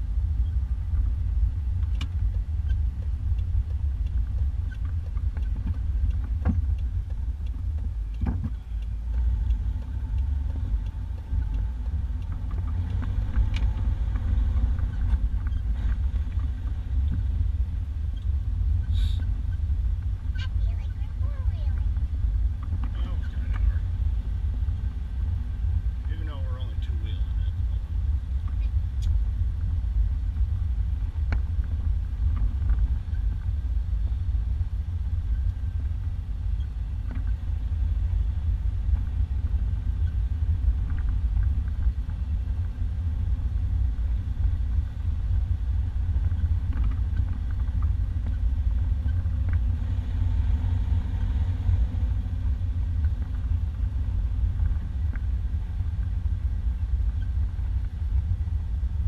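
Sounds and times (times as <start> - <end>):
engine and tyres rumbling: 0.0 - 59.0
faint knocks and rattles: 1.8 - 17.4.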